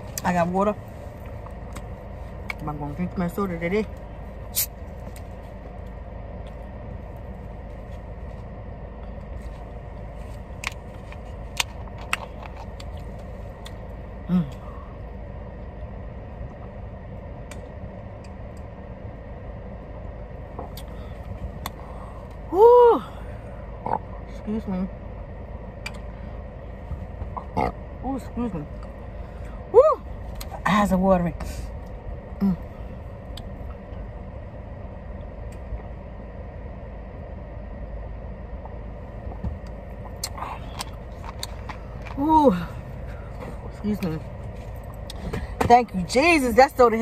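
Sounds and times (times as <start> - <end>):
car cabin hum: 0.0 - 47.0.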